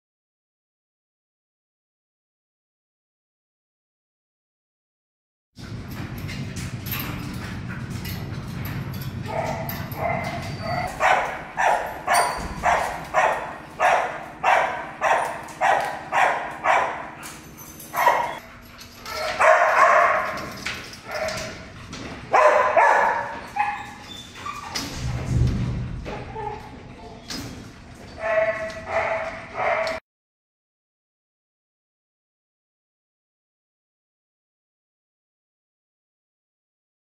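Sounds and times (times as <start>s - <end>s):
dog barking: 9.3s - 17.3s, 18.0s - 18.4s, 19.1s - 20.5s, 22.3s - 23.9s, 28.2s - 30.0s.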